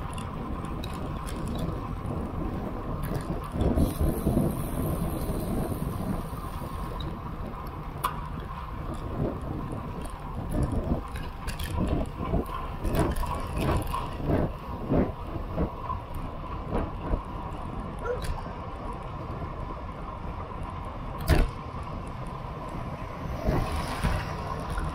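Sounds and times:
bike tyres rolling on asphalt: 0.0s - 24.9s
wind buffeting microphone: 0.0s - 24.9s.

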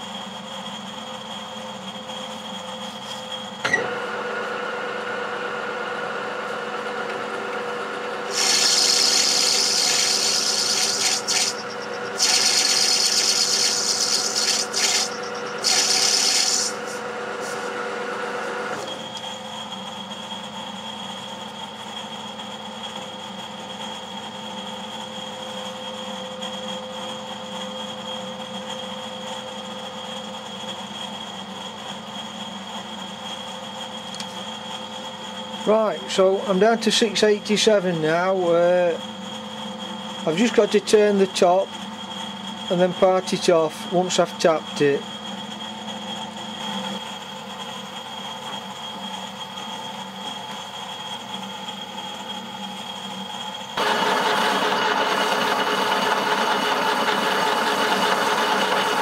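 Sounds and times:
lathe motor humming: 3.8s - 19.8s, 50.2s - 59.0s
cutting tool hissing on metal: 8.3s - 17.8s.

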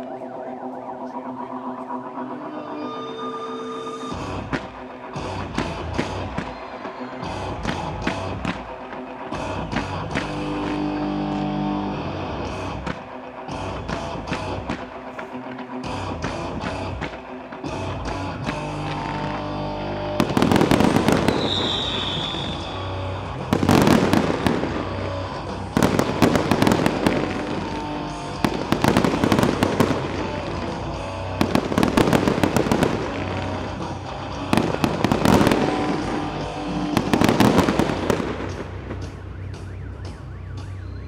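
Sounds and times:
music: 0.0s - 41.0s
fireworks bursting: 18.5s - 39.3s
high firework whistle: 20.2s - 24.9s.

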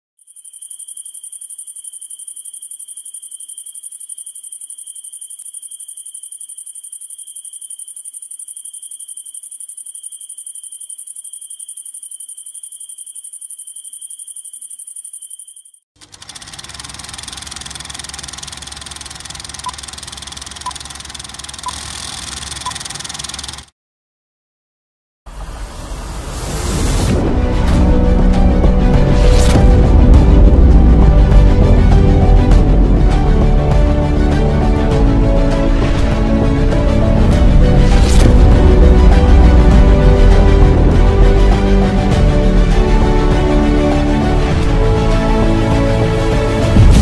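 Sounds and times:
crickets trilling: 0.2s - 15.8s
film projector rattling and humming: 16.0s - 23.7s.

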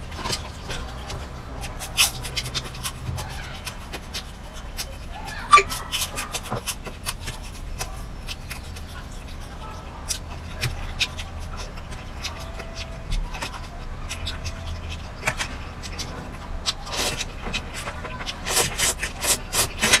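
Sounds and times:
chewing broccoli: 0.0s - 20.0s
steady low hum: 0.0s - 20.0s
slurping food: 13.4s - 20.0s.

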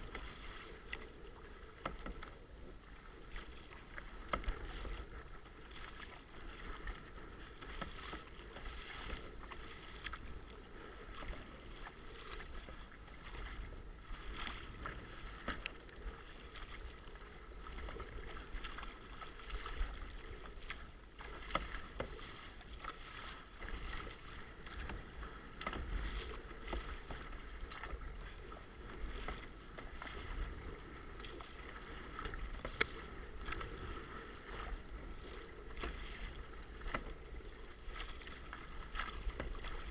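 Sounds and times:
paddle splashing in water: 0.0s - 39.9s
water slapping hull: 0.0s - 39.9s.

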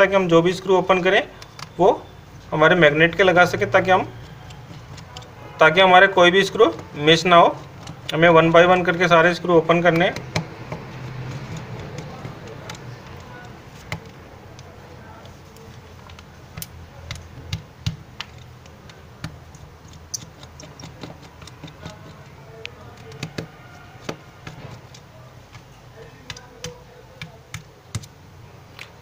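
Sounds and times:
screwdriver clicking on tiny screws: 15.6s - 25.7s.

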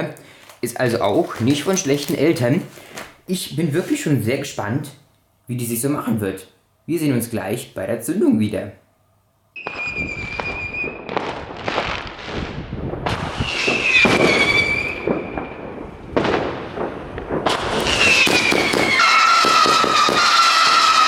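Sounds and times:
firework hiss and crackle: 9.6s - 21.0s
firework howler shots: 9.6s - 21.0s.

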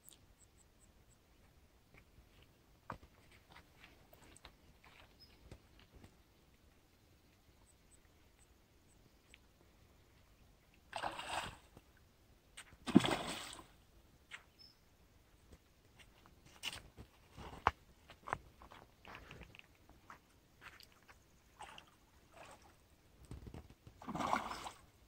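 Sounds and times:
bait splashing in water: 12.9s - 13.7s
small clicks and rustles: 23.2s - 24.0s.

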